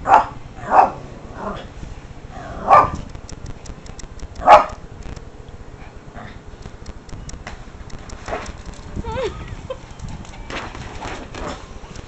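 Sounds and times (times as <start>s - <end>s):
small dog barking: 0.1s - 1.0s, 2.6s - 3.0s, 4.4s - 4.8s.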